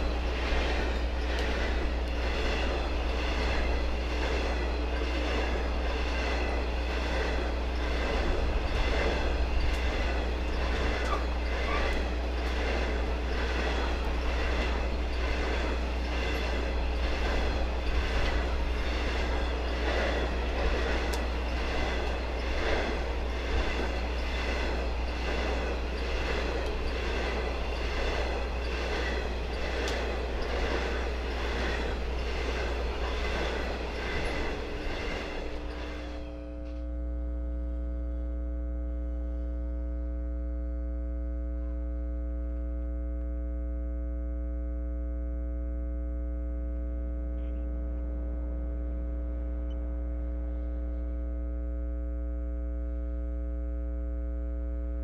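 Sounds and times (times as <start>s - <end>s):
train wheels clattering: 0.0s - 36.8s.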